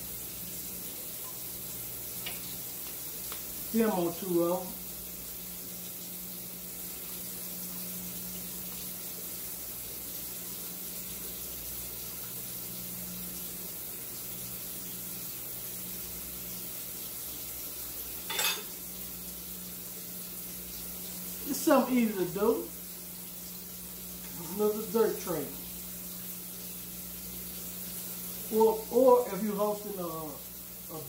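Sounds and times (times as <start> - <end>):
background hiss: 0.0 - 31.0
metal spoon set down on wood: 18.3 - 18.7.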